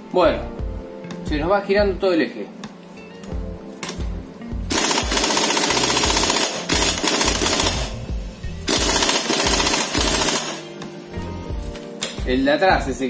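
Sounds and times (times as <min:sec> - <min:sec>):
impact wrench hammering: 0:04.7 - 0:08.0, 0:08.7 - 0:10.6.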